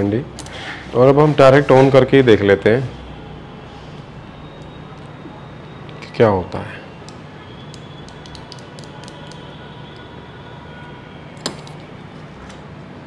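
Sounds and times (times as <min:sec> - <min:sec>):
faint hum: 0:02.6 - 0:13.0.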